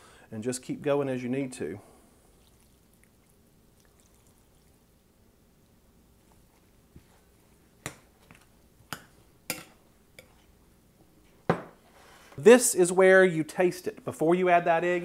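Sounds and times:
broth pouring into a bowl: 2.2s - 4.9s.

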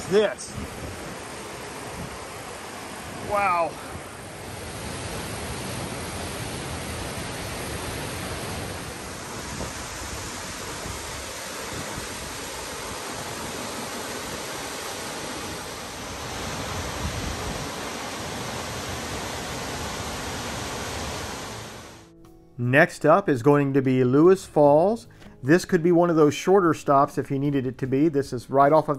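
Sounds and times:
waterfall rushing: 0.0s - 22.1s.

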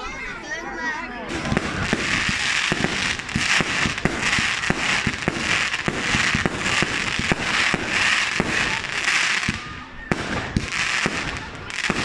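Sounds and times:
fireworks bangs: 1.2s - 12.0s
fireworks crackling hiss: 1.3s - 12.0s.

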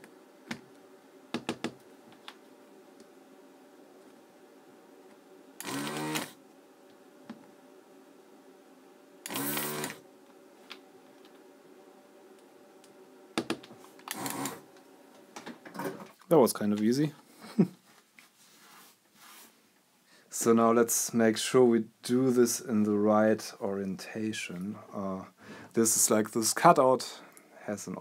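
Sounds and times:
desoldering pump buzzing: 5.6s - 6.4s, 9.2s - 10.0s, 13.4s - 14.7s.

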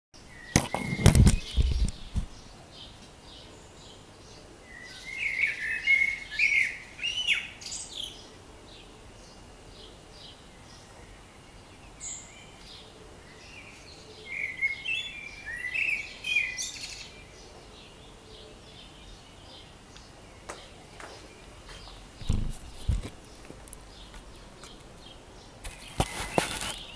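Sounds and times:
blackbird singing: 13.3s - 19.7s
loud knocks: 22.2s - 23.1s.

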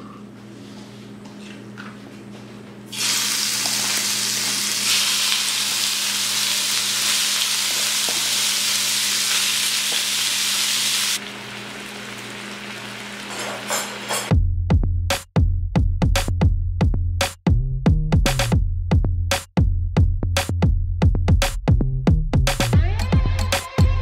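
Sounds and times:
beef sizzling in frying pan: 2.9s - 14.1s.

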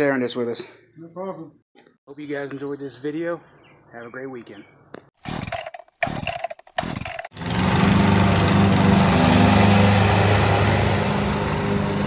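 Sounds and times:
lawn mower engine running: 5.2s - 12.0s.

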